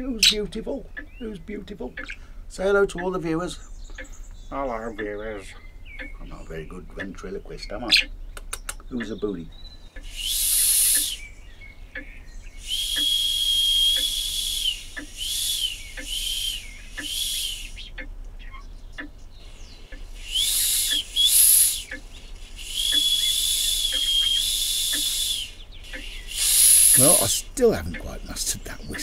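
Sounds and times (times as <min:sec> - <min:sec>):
faint regular ticking: 0:00.0 - 0:29.0
steam hiss: 0:10.0 - 0:11.3, 0:12.6 - 0:17.9, 0:19.5 - 0:27.5
steam whistle tooting: 0:10.1 - 0:11.2, 0:12.6 - 0:17.8, 0:20.2 - 0:21.9, 0:22.6 - 0:27.2.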